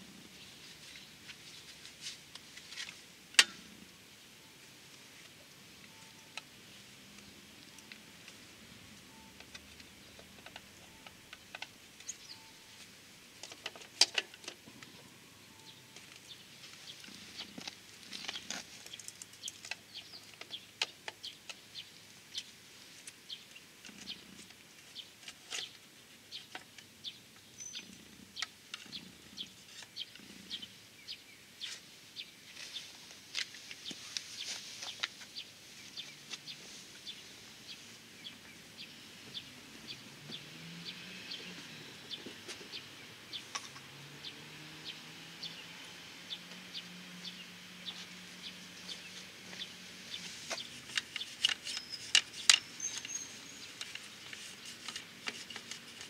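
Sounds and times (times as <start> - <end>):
small birds chirping: 0.0 - 56.0
screwdriver and parts clicking: 50.5 - 53.2.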